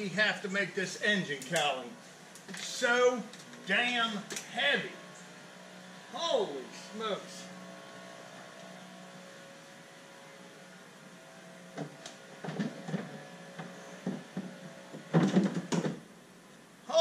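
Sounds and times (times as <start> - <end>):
engine cowling knocks and clunks: 11.7 - 16.1.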